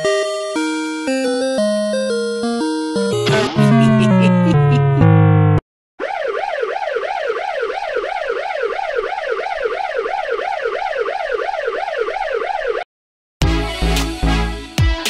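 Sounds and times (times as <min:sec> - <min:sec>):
ambulance siren yelping: 0:01.3 - 0:05.4, 0:06.0 - 0:12.9.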